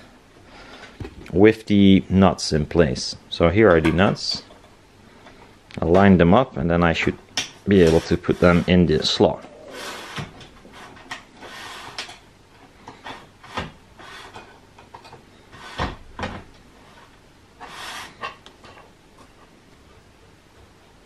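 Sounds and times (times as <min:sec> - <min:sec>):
metal sliding scrapes: 0:07.7 - 0:12.2.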